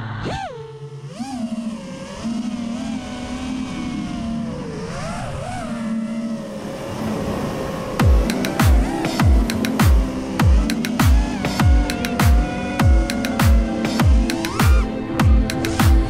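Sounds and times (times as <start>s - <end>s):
drone propellers whining: 0.0s - 16.0s
electronic music with deep bass hit: 8.0s - 16.0s.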